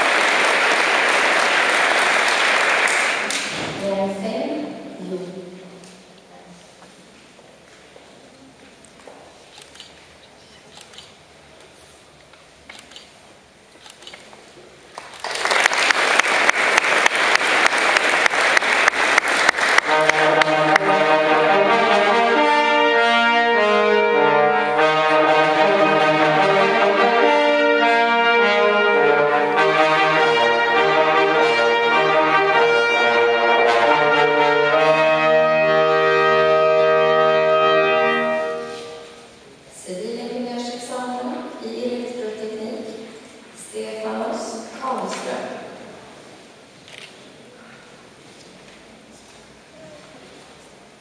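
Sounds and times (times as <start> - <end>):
audience applauding: 0.0 - 3.6, 14.9 - 21.2.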